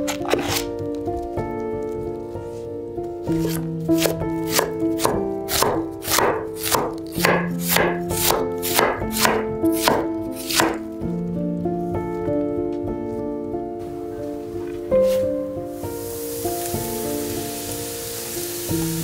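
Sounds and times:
knife cutting cabbage on wood: 0.0s - 0.8s, 3.3s - 10.9s
background music: 0.0s - 19.0s.

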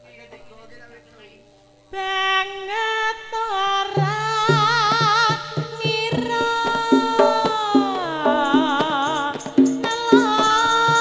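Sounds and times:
woman singing with vibrato: 1.9s - 11.0s
drum strokes: 4.0s - 11.0s.

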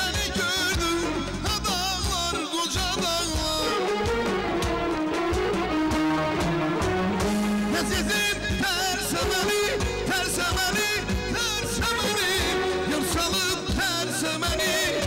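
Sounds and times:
man singing into microphone: 0.0s - 4.2s, 7.6s - 15.0s
drums: 0.0s - 15.0s
electric guitar: 0.0s - 15.0s
synthesizer keyboard: 3.3s - 10.9s.

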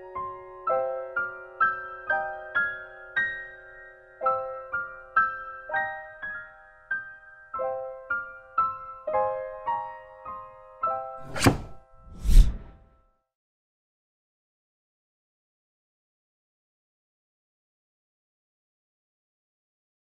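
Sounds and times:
slow piano music: 0.0s - 11.2s.

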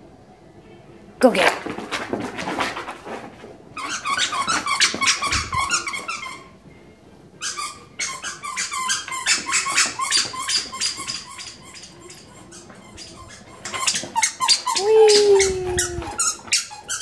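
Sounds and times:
squeaky toy squeaking: 3.8s - 6.6s, 7.4s - 17.0s.

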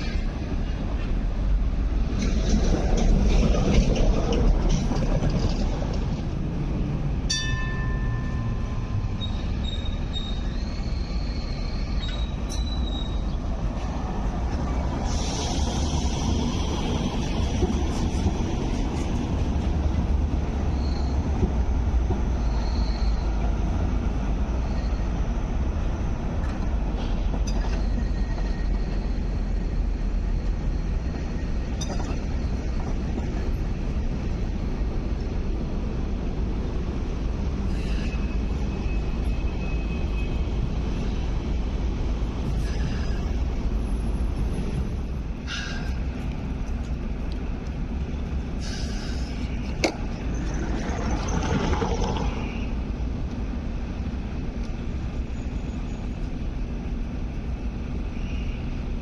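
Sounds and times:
wheels clicking over rail joints: 0.0s - 10.5s, 42.4s - 52.5s
light rail vehicle rumbling: 0.0s - 59.0s
high wheel squeals: 8.3s - 13.4s, 20.6s - 21.3s, 22.2s - 23.4s, 27.5s - 32.8s, 37.7s - 40.5s.

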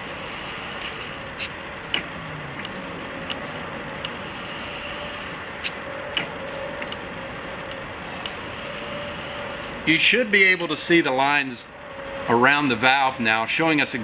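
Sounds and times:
faint steady hum: 0.0s - 14.0s
steady hiss: 4.0s - 5.8s.

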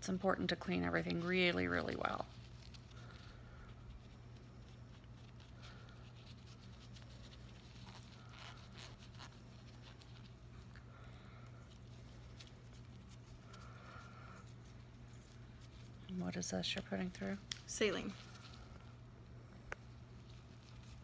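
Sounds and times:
steady low hum: 0.0s - 21.0s
gloved hands rubbing: 0.7s - 21.0s.

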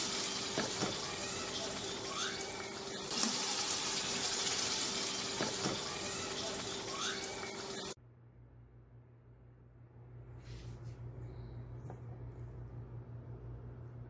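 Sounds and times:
sauce simmering in a pan: 3.1s - 6.6s.

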